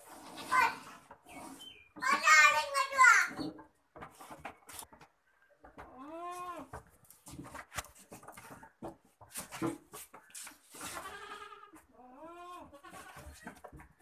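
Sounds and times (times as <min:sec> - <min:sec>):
goats bleating: 0:05.9 - 0:06.7, 0:10.8 - 0:13.3.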